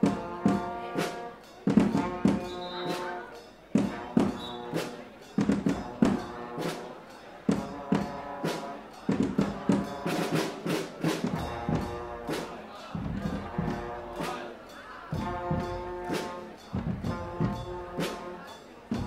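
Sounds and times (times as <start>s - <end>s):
loud drum strikes: 0.0s - 4.6s, 5.2s - 6.8s, 8.9s - 14.4s, 15.1s - 18.2s
brass horns playing chords: 0.0s - 19.0s.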